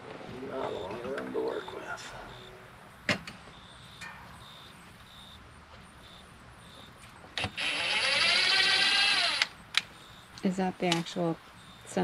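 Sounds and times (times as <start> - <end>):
cordless drill whining: 7.4 - 9.5.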